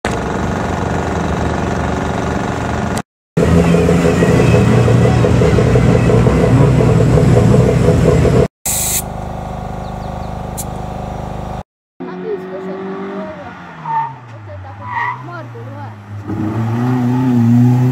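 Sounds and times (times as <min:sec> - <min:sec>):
car engine running: 0:00.0 - 0:13.6
brief hiss: 0:08.7 - 0:09.1.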